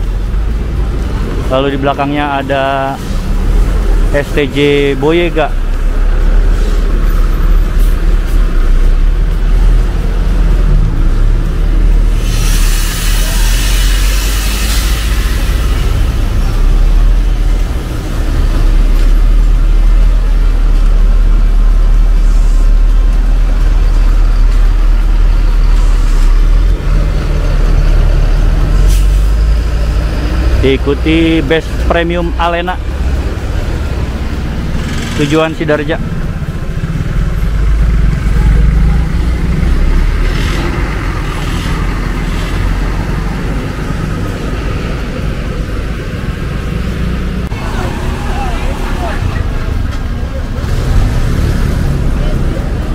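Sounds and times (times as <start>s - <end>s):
bus diesel engine passing: 0.0s - 52.9s
short air hisses: 12.1s - 15.7s, 28.8s - 29.3s.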